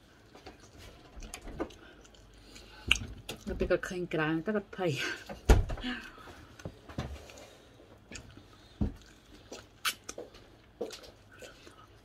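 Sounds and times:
person biting and chewing: 8.0 - 12.0
mouth clicks and smacks: 9.0 - 11.5.

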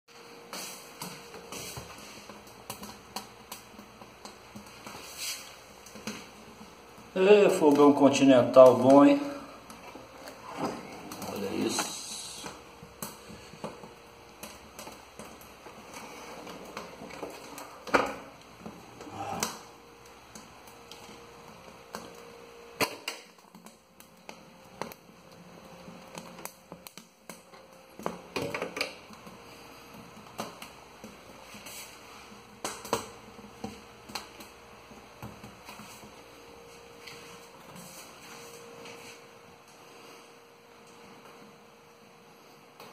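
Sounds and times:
wood fire crackling: 0.1 - 42.9.

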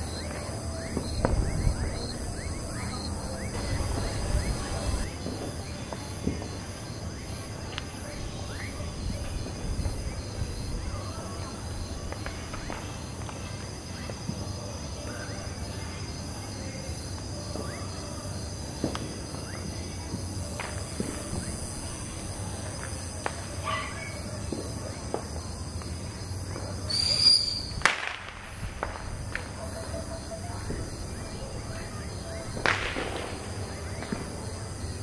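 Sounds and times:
loud firework bang: 0.0 - 2.4, 3.5 - 6.6, 27.2 - 29.5, 32.5 - 34.6
firework whistle: 0.0 - 10.3, 26.9 - 34.7
firecrackers popping: 0.0 - 14.8, 17.1 - 35.0
insect drone: 0.0 - 35.0.

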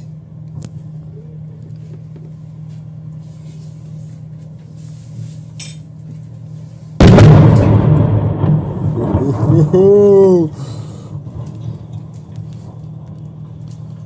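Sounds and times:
heavy engine rumble: 0.0 - 14.0.

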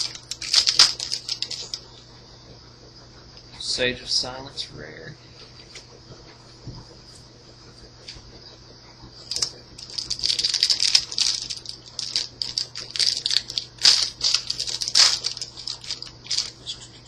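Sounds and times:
foil pack tearing open: 0.0 - 1.8, 9.2 - 16.7.

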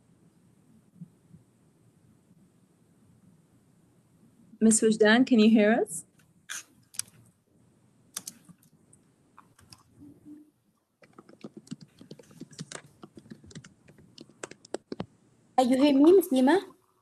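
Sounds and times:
typing on computer keyboard: 8.2 - 8.6, 11.0 - 15.1.

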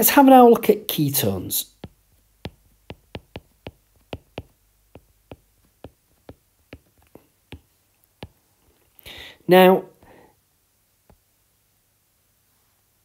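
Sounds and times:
stylus tapping on glass screen: 1.7 - 8.4.

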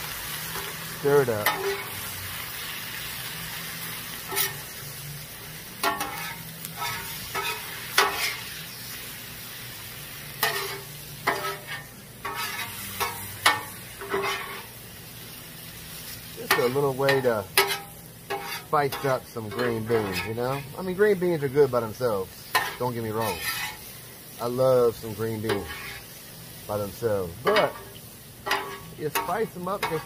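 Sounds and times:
green beans sizzling on griddle: 0.0 - 30.0
metal spatula scraping steel plate: 4.2 - 4.7, 5.8 - 8.5, 10.4 - 14.7, 16.5 - 20.7, 22.5 - 23.9, 25.5 - 26.1, 28.5 - 30.0.

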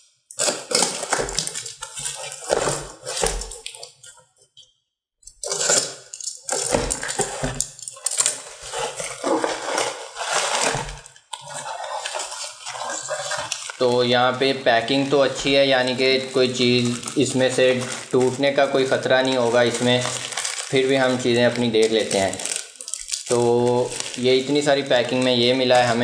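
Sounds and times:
box cutter slicing plastic: 0.3 - 3.8, 5.4 - 13.8
plastic crinkling and rustling: 0.4 - 4.3, 5.4 - 26.0.

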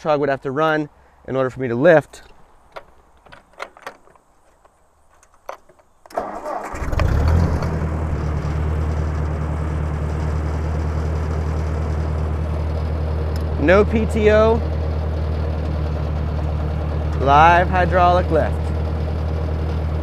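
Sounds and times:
tractor engine idling: 6.1 - 20.0.

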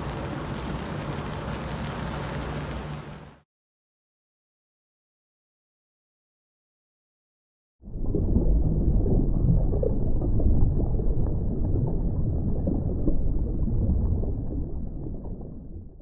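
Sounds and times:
deep rumbling: 7.8 - 16.0.

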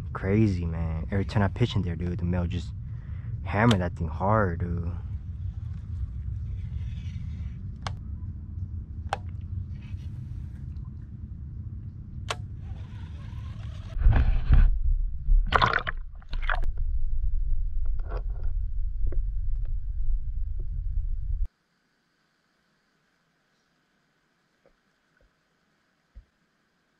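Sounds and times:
underwater microphone rumble: 0.0 - 21.5
wind rumble: 0.0 - 21.5
water sloshing and splashing: 15.3 - 16.7.

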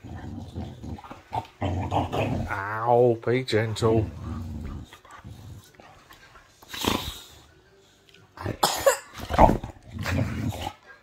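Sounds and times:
dog huffing and growling: 0.0 - 2.7, 3.8 - 7.5, 9.2 - 11.0.

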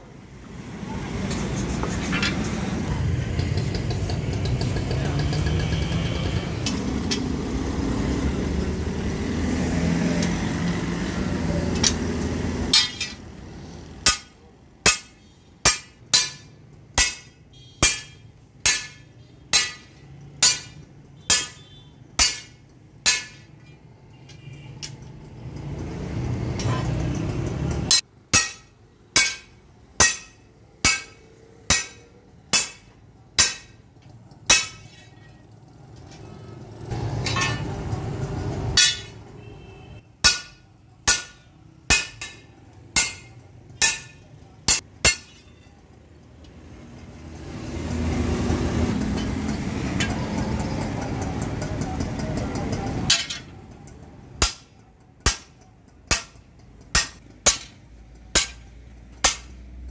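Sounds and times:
engine rumble: 0.0 - 59.9
sledgehammer striking steel on anvil: 11.6 - 13.3, 13.9 - 23.8, 24.8 - 35.4, 36.9 - 39.4, 40.2 - 45.8, 52.9 - 53.6, 54.3 - 59.8.

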